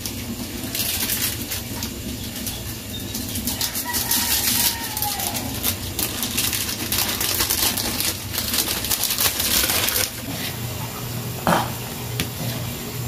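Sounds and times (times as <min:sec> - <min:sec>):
broth boiling and bubbling: 0:00.0 - 0:13.0.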